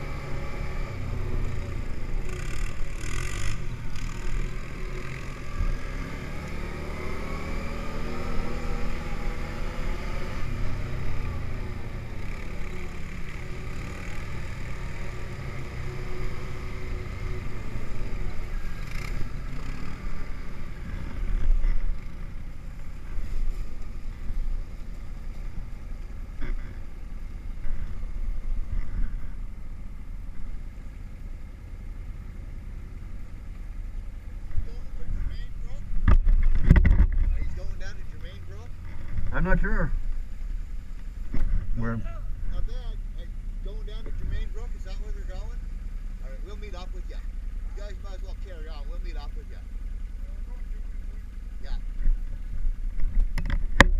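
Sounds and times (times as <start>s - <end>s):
atv engine running: 0.0s - 53.9s
heavy low rumble: 20.0s - 53.9s.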